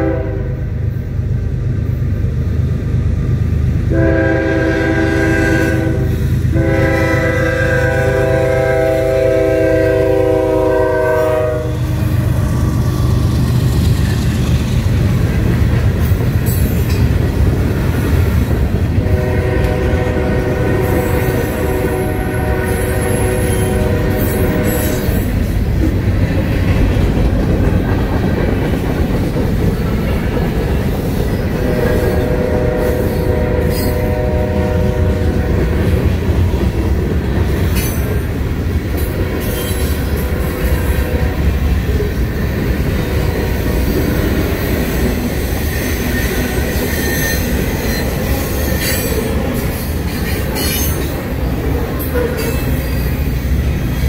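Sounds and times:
train horn: 0.0s - 0.8s, 3.8s - 12.2s, 19.0s - 25.4s, 31.6s - 36.2s, 39.0s - 41.8s, 42.9s - 44.3s, 45.8s - 49.8s, 52.0s - 53.2s
freight cars rumbling and clattering: 11.8s - 21.7s, 24.2s - 33.0s, 47.4s - 54.0s.

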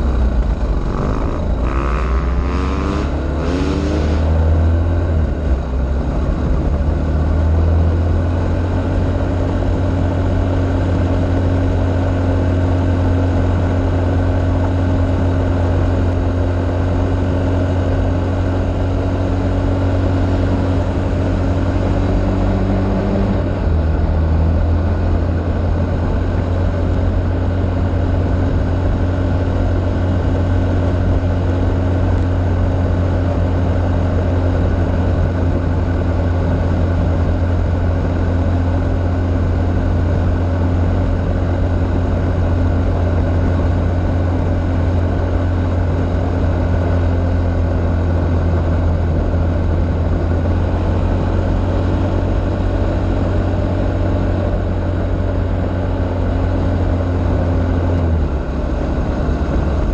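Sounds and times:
tyres on gravel road: 0.0s - 6.7s
vehicle engine running: 0.0s - 59.9s.

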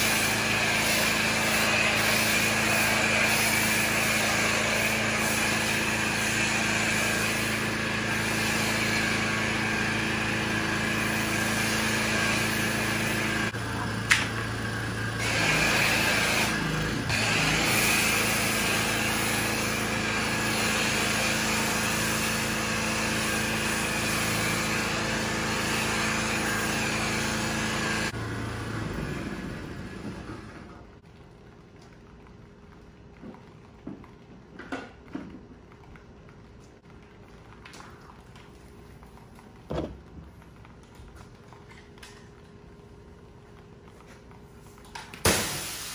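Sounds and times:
water spray hissing: 0.0s - 9.2s
pressure washer motor hum: 0.0s - 31.0s, 45.2s - 45.9s.

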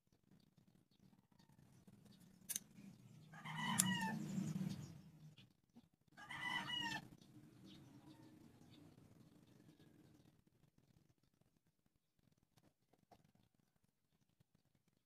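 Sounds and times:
sharp clicks: 3.7s - 4.1s.

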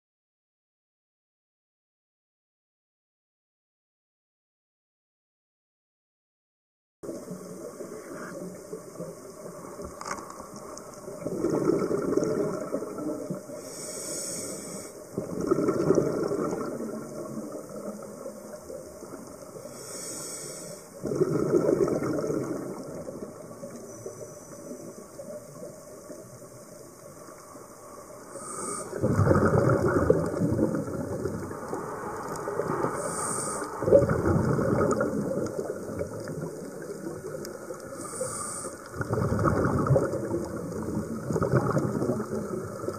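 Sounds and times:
exhaled bubbles rushing: 10.6s - 13.6s, 15.1s - 19.7s, 21.0s - 27.3s, 28.3s - 42.9s
regulator hissing inhalations: 13.5s - 15.1s, 19.6s - 21.0s, 28.3s - 29.0s, 31.7s - 33.8s, 37.8s - 38.9s.

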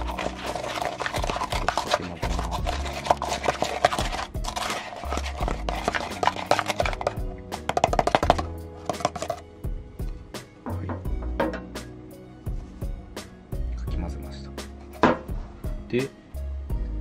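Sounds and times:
spoon clacking against cup: 0.0s - 9.4s
background music with bass: 0.0s - 17.0s.

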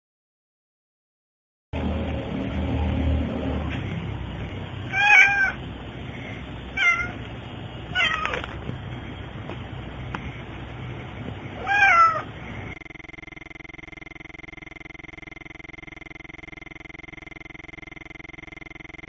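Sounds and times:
cat meowing: 4.9s - 5.6s, 6.7s - 7.2s, 7.9s - 8.6s, 11.6s - 12.3s.

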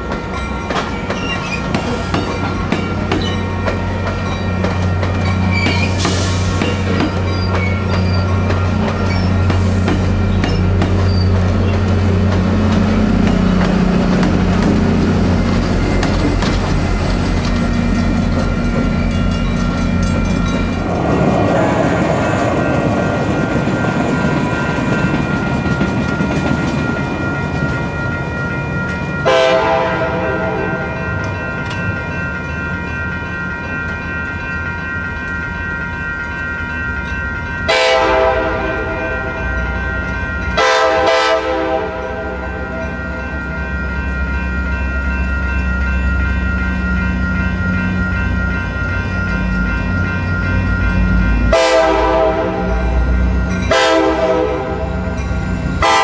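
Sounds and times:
train wheels clattering on rails: 0.0s - 29.9s
diesel train drone: 0.0s - 56.0s
train horn chime blast: 29.2s - 31.3s, 37.7s - 39.8s, 40.5s - 43.2s, 51.4s - 55.2s, 55.8s - 56.0s.

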